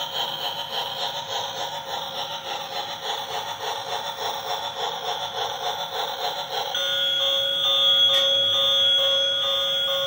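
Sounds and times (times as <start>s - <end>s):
warbling electronic alarm tone: 6.8s - 10.0s.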